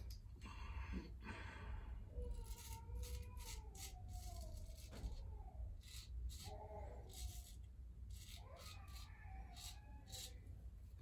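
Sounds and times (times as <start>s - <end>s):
razor scraping stubble: 2.3s - 5.2s, 5.8s - 10.4s.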